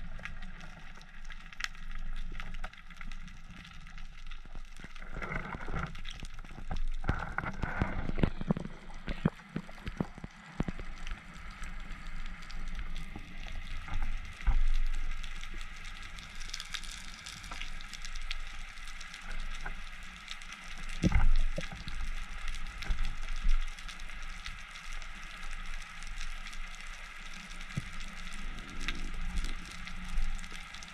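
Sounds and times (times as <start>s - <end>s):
underwater crackle of tiny clicks: 0.0s - 30.9s
underwater knocks and thumps: 5.2s - 10.9s.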